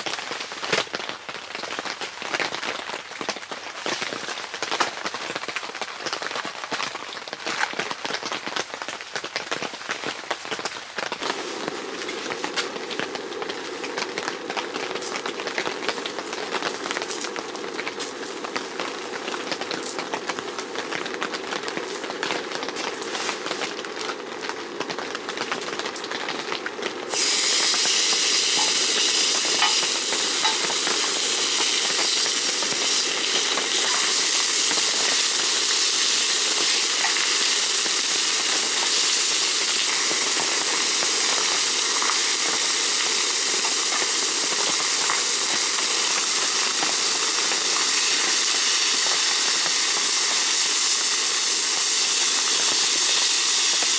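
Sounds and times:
meat sizzling on a griddle: 10.3s - 53.9s
soft crackling: 10.4s - 35.3s.

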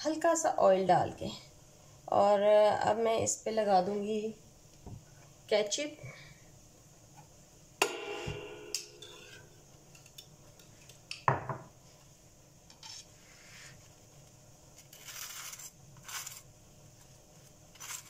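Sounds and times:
knife scraping bun: 14.8s - 16.5s, 17.7s - 18.0s.

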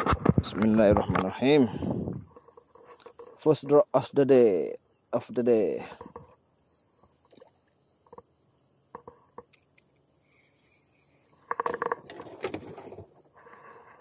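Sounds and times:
high insect chirp: 0.5s - 14.0s.

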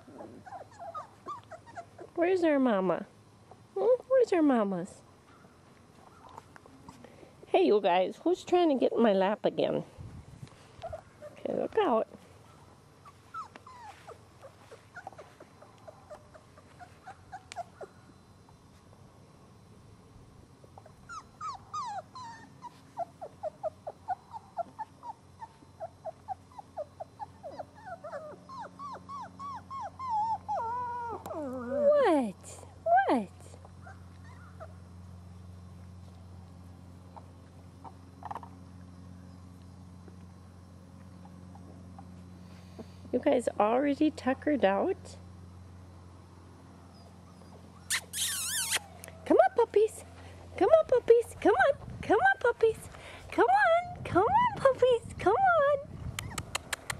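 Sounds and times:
puppies whimpering and squeaking: 0.0s - 2.2s, 10.6s - 18.1s, 20.8s - 32.1s, 33.8s - 34.8s, 46.9s - 49.2s, 56.1s - 56.9s
puppies yelping: 0.0s - 2.2s, 10.8s - 18.1s, 20.8s - 32.0s, 33.7s - 34.9s, 46.9s - 49.2s.

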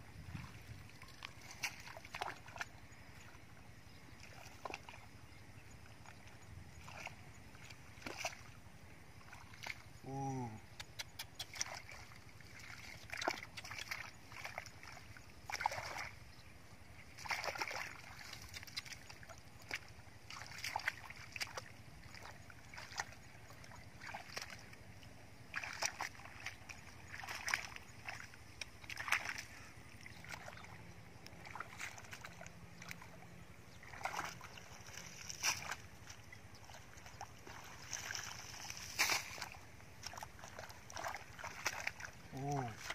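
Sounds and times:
hands splashing in muddy water: 0.2s - 2.8s, 4.2s - 5.1s, 6.8s - 8.6s, 9.2s - 16.2s, 17.1s - 42.9s.

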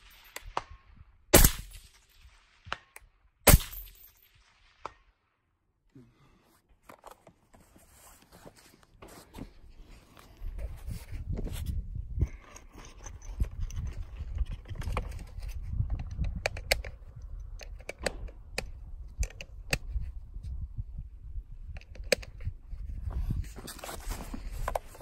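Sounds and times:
wind rumbling on microphone: 10.3s - 25.0s.

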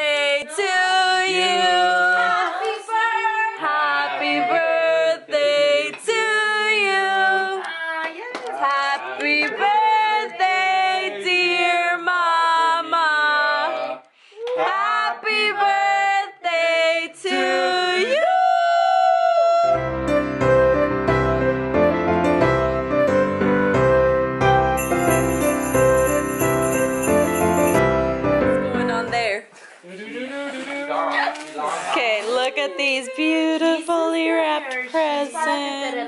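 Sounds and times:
women singing together: 0.0s - 19.8s, 32.0s - 36.0s.

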